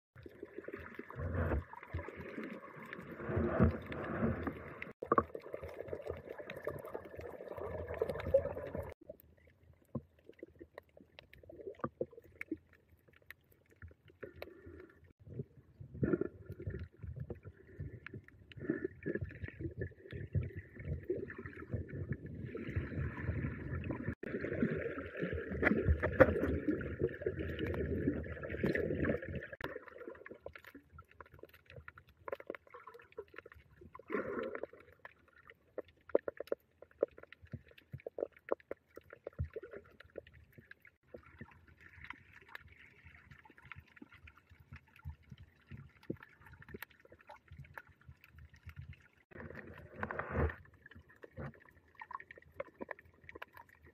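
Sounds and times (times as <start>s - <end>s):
muffled water sloshing underwater: 0.1s - 53.9s
clicks and crackles: 28.6s - 53.9s.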